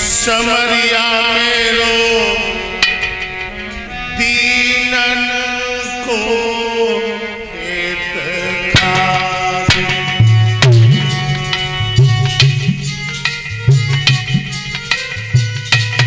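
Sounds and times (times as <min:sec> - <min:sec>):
man chanting: 0:00.0 - 0:02.8, 0:04.0 - 0:10.3
instrumental drone: 0:00.0 - 0:16.0
drum strokes: 0:02.0 - 0:04.7, 0:08.7 - 0:16.0.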